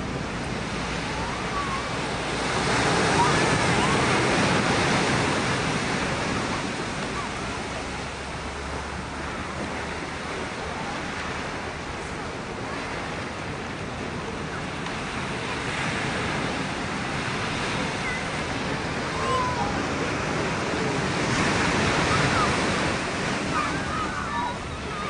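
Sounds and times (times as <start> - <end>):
ocean waves breaking on beach: 0.0 - 25.0.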